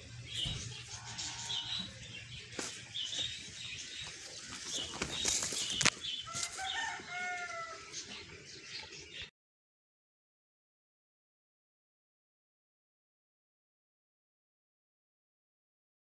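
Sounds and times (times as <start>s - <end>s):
small birds chirping: 0.0s - 9.3s
rooster crowing: 0.9s - 2.0s, 6.3s - 8.0s.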